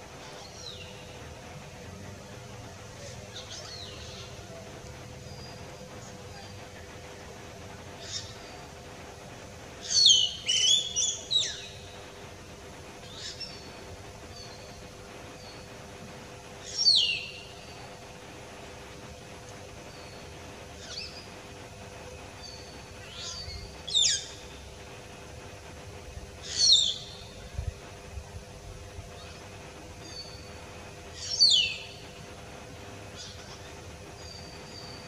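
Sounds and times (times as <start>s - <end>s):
myna whistling calls: 9.8s - 12.0s, 31.2s - 32.1s.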